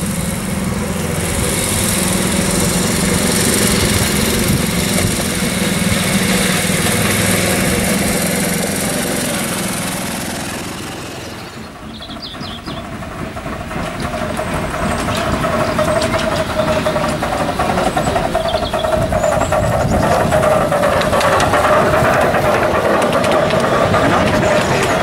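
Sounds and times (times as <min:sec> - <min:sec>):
miniature steam locomotive passing: 0:00.0 - 0:25.0.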